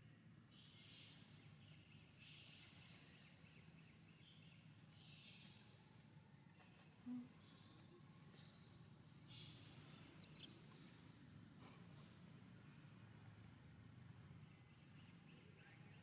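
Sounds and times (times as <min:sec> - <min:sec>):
faint high chirping: 0:00.6 - 0:12.2.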